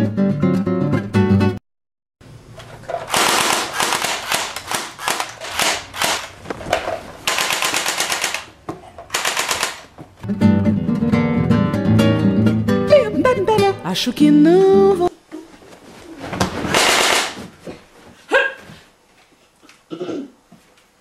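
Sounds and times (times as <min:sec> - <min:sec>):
automatic gunfire bursts: 0:03.1 - 0:06.4, 0:07.2 - 0:08.5, 0:09.1 - 0:09.9, 0:16.8 - 0:17.4
acoustic guitar music: 0:10.2 - 0:15.1.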